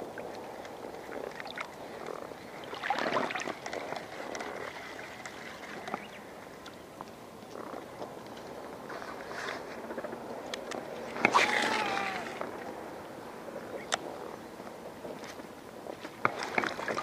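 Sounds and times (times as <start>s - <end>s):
rush of water: 0.0s - 6.8s, 11.0s - 12.9s, 16.3s - 17.0s
small waves lapping: 0.0s - 9.9s, 10.9s - 13.1s, 15.1s - 17.0s.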